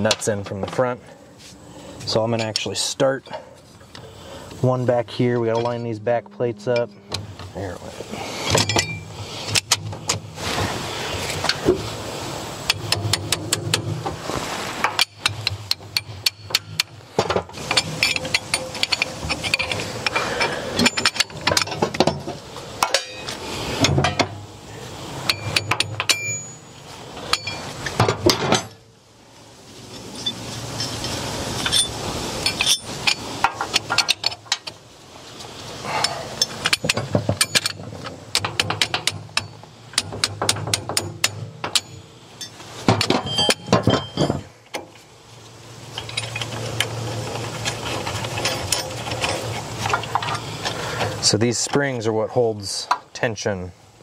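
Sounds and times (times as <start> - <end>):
metallic clinks of steel parts: 2.3 - 3.4, 8.4 - 9.8, 14.8 - 24.3, 25.2 - 28.8, 30.0 - 34.7, 36.0 - 45.0, 45.9 - 47.0, 47.6 - 50.5.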